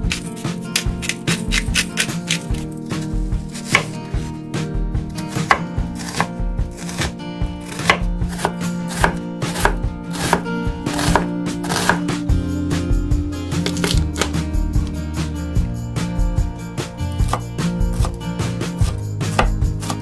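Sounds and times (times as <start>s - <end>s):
background music sustained tones: 0.0s - 20.0s
knife chopping on cutting board: 0.1s - 2.6s, 3.4s - 4.3s, 5.2s - 12.1s, 17.2s - 20.0s.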